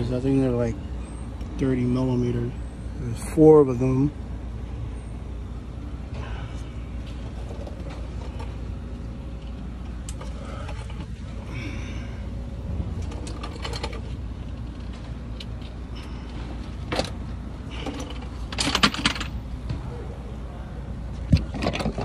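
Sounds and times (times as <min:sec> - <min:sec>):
low background rumble: 0:00.0 - 0:22.0
hand tools clicking and clanking: 0:13.0 - 0:19.4.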